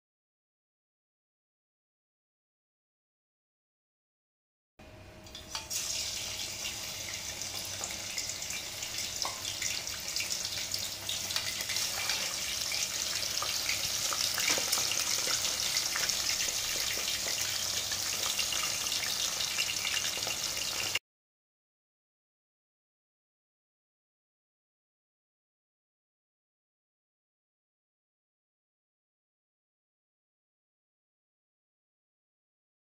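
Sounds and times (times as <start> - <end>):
chicken deep-frying in oil: 5.2 - 21.0.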